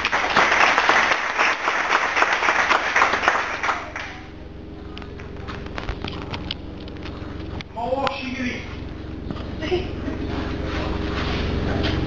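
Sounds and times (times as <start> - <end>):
audience applauding: 0.0 - 4.3.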